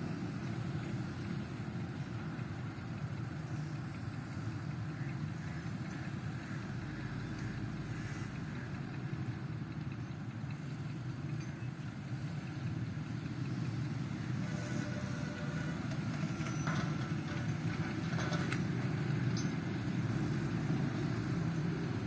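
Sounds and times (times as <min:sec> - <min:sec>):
distant engines rumbling: 0:00.0 - 0:22.0.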